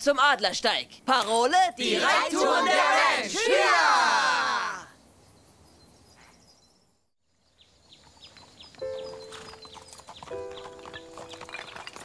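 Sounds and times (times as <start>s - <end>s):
faint outdoor ambience: 0.0s - 12.0s
small birds chirping: 5.0s - 12.0s
horse hooves clopping: 7.9s - 12.0s.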